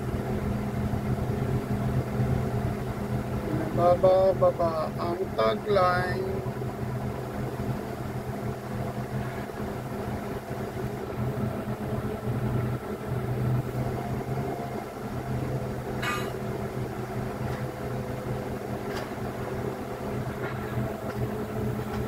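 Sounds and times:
crane machinery humming: 0.0s - 22.0s.

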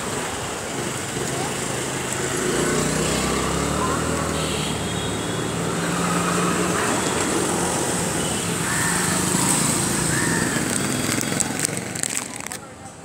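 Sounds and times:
street traffic noise: 0.0s - 13.0s.

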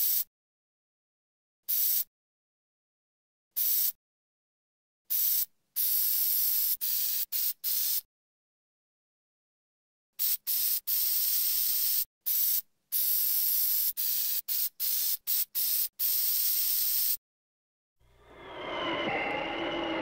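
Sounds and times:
aerosol can spraying: 1.7s - 2.1s, 3.6s - 4.0s, 5.1s - 8.1s, 10.2s - 17.2s.

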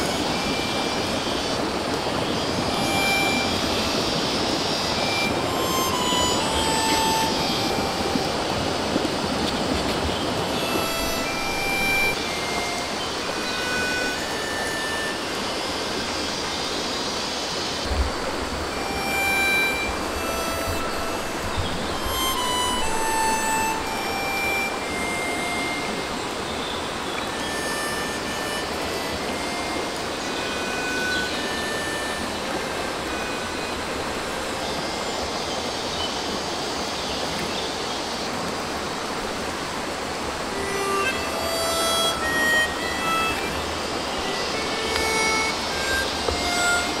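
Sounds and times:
stream flowing over rocks: 0.0s - 47.0s
short high tones: 2.6s - 8.4s, 10.5s - 15.9s, 17.9s - 26.3s, 40.6s - 47.0s
brief high whistles: 27.4s - 29.6s.

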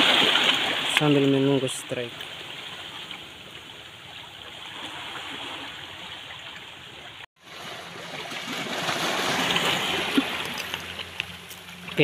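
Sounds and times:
sea waves washing over rocks: 0.0s - 3.4s, 7.4s - 12.0s.

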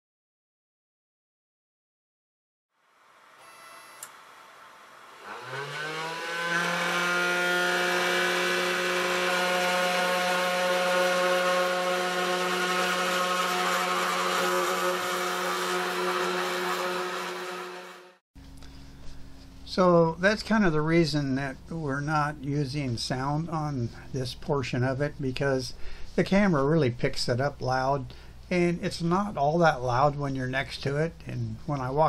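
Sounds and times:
cnc router spindle whine: 3.4s - 4.1s, 4.8s - 18.1s.

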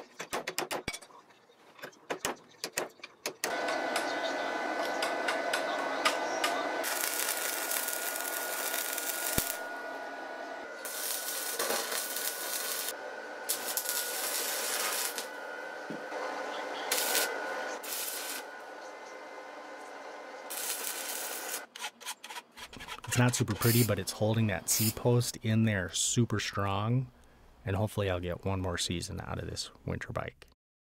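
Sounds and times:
welding arc crackling and sizzling: 3.5s - 18.7s, 20.0s - 21.7s, 23.2s - 24.0s
faint high whine: 3.5s - 21.6s.

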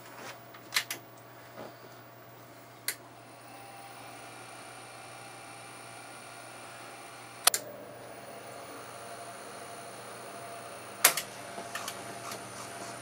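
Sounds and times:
tape machine hum and whine: 0.0s - 13.0s
sharp mechanical clicks: 7.4s - 7.7s, 11.0s - 12.0s.

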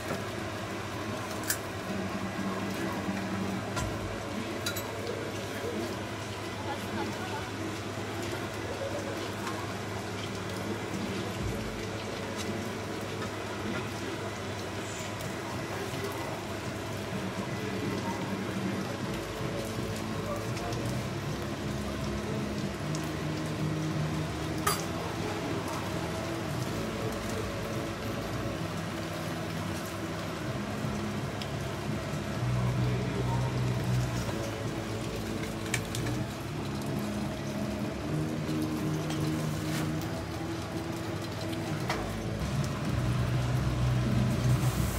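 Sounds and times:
rain hissing: 0.0s - 44.9s
murmur of voices: 2.0s - 22.7s.

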